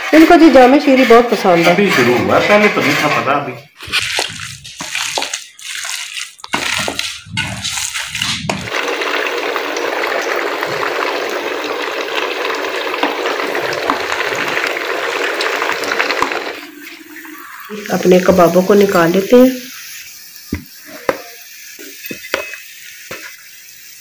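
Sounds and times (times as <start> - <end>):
sizzling with fine crackling: 0.0 - 24.0
hands squelching meat mixture: 3.8 - 8.8.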